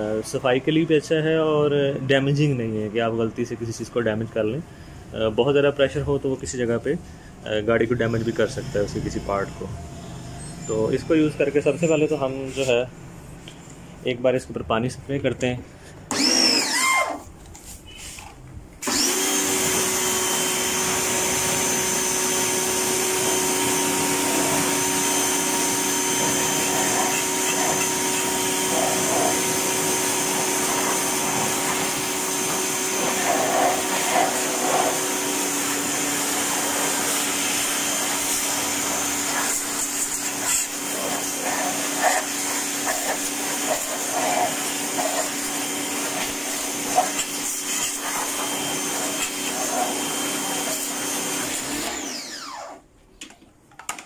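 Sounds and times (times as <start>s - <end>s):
pressure washer motor humming: 16.1s - 17.2s, 18.8s - 52.8s
water jet hissing on metal: 26.2s - 29.9s, 33.0s - 35.0s, 36.2s - 48.4s.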